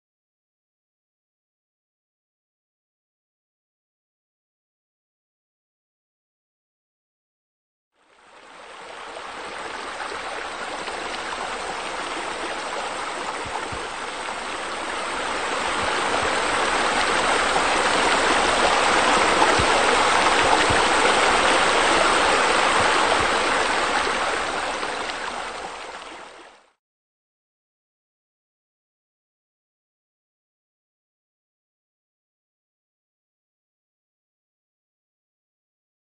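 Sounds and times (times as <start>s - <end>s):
running water: 8.0s - 26.8s.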